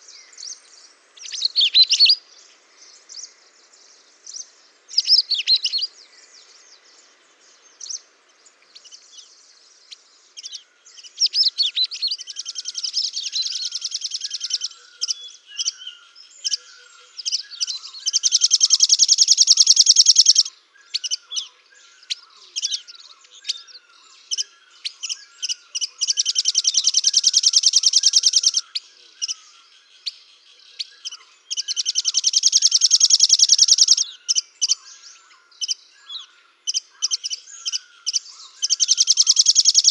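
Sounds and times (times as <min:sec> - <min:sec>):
songbird fast trills: 0:00.0 - 0:02.5, 0:04.2 - 0:06.0, 0:07.7 - 0:39.9
lower bird chirp: 0:00.0 - 0:39.9
short high bird chirps: 0:01.2 - 0:02.2, 0:04.3 - 0:05.9, 0:17.2 - 0:21.4, 0:31.0 - 0:34.8, 0:37.0 - 0:39.9.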